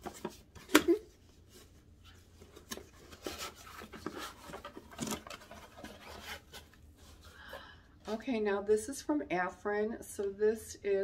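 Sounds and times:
cardboard box rustling and scraping: 1.5 - 7.3.

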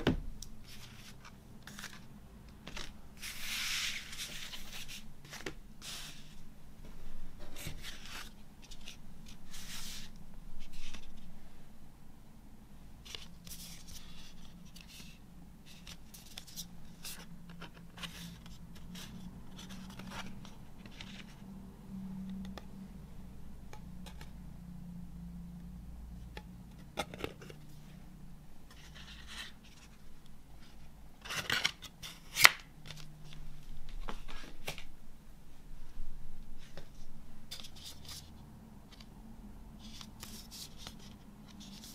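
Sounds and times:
cardboard sleeve rustling and sliding: 0.6 - 6.4, 7.4 - 11.2.

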